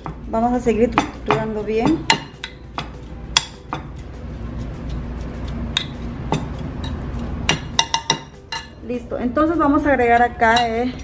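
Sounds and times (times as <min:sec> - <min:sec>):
metal spoon clinking on ceramic dish: 0:00.9 - 0:03.9, 0:05.7 - 0:08.8, 0:10.1 - 0:11.0.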